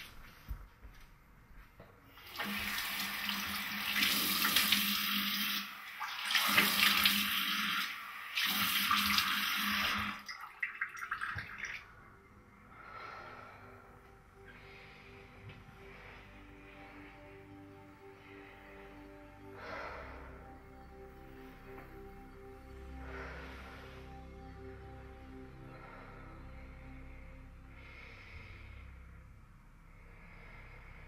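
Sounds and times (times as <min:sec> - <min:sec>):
tap water running into basin: 0:02.2 - 0:11.9
low steady hum: 0:11.2 - 0:31.0.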